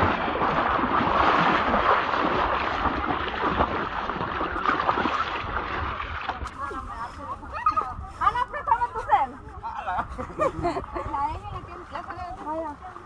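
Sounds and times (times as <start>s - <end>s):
water splashing around legs: 0.0s - 9.7s.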